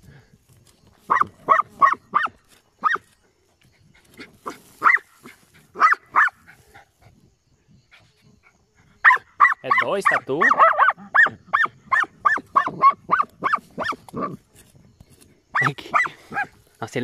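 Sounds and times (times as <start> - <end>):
dog barking: 1.1 - 3.0, 4.4 - 6.4, 9.0 - 14.4, 15.6 - 16.5
paws scrabbling in loose dirt: 2.4 - 6.8.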